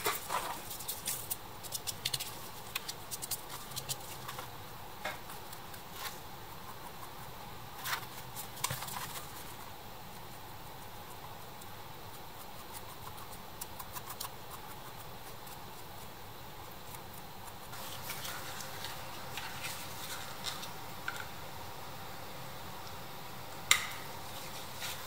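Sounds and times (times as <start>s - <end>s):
paintbrush scraping on plastic: 16.8s - 20.7s.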